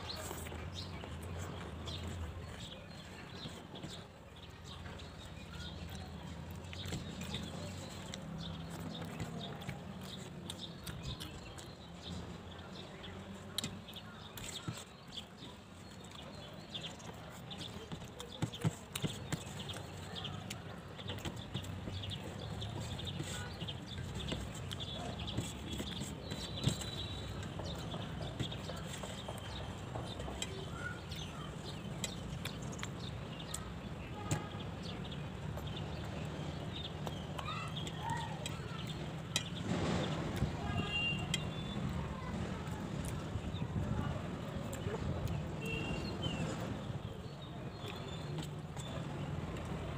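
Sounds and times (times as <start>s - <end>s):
fingers mixing rice: 0.0s - 39.6s
chewing and lip smacks: 5.5s - 12.2s.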